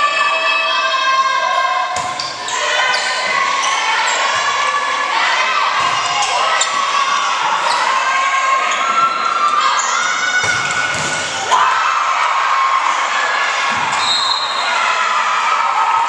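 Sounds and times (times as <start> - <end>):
crowd shouting and cheering: 0.0 - 16.0
sneakers squeaking: 1.9 - 4.6, 5.7 - 11.3, 13.7 - 14.8
volleyball being struck: 10.4 - 11.4.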